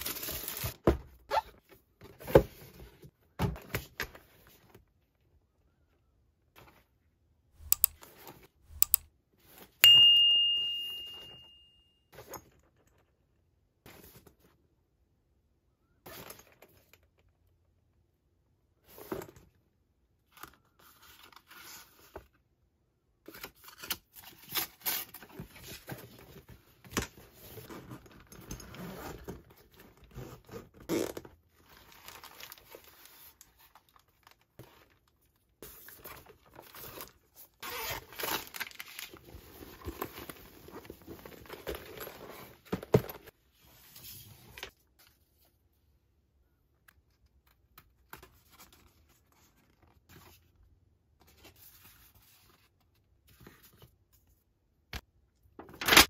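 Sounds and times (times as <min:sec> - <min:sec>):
sharp clicks: 0:07.6 - 0:08.0, 0:08.7 - 0:09.1.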